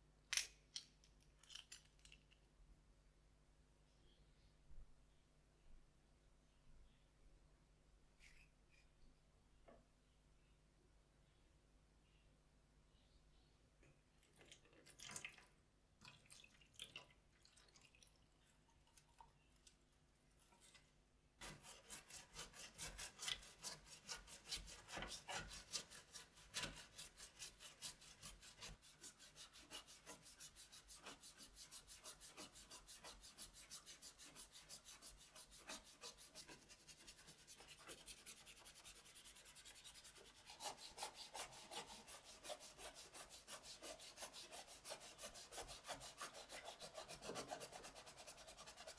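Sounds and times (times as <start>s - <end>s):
water drips and trickles: 14.2s - 19.7s
brush scrubbing plastic: 21.4s - 48.9s.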